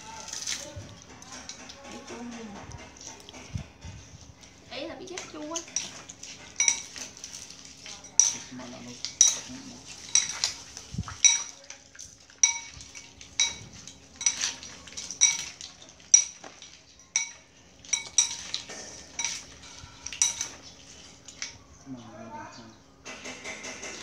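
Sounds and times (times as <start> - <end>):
spoons clinking on ceramic plates: 5.2 - 7.2, 7.8 - 11.7, 12.4 - 21.6.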